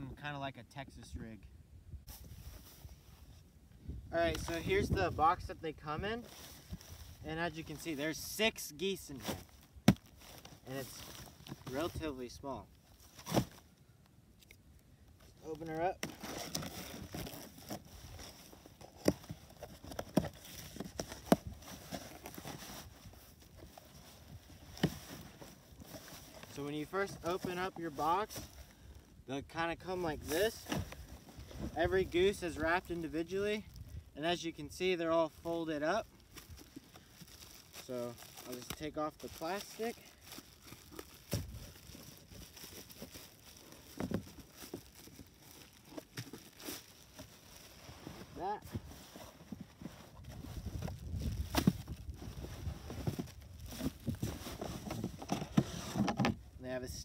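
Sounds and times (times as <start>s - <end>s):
cardboard rustling: 12.9s - 13.7s, 15.5s - 28.6s, 35.9s - 56.4s
plastic bag crinkling: 36.2s - 47.8s.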